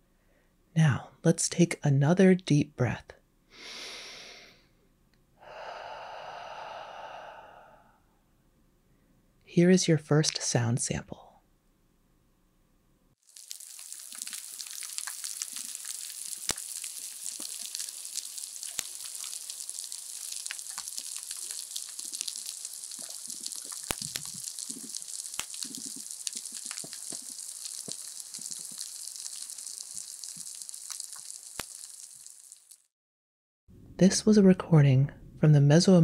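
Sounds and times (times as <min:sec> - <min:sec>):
dense crackle of tiny clicks: 0:13.2 - 0:32.9
sharp snaps: 0:13.4 - 0:32.8.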